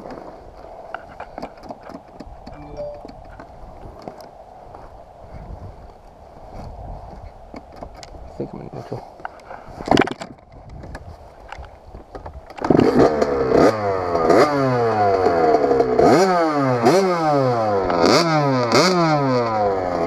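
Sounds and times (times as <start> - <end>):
two-stroke dirt bike engine revving: 12.6 - 20.0.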